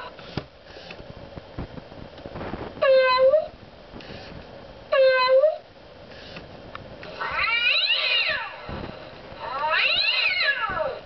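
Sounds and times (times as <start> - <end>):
toy speaker playing cat yowls: 2.8 - 3.5, 4.9 - 5.6, 7.2 - 8.6, 9.4 - 11.0.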